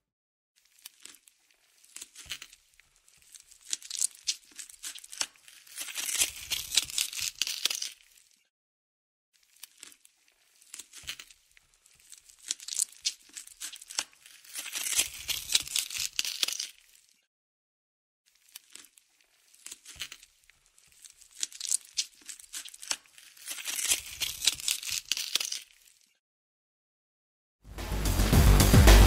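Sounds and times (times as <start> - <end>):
ripping crackling flesh foley: 0.6 - 8.5, 9.4 - 17.2, 18.3 - 26.2.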